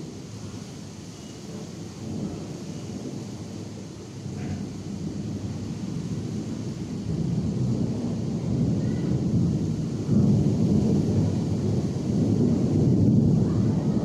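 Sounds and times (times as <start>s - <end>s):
rain falling: 0.0s - 14.0s.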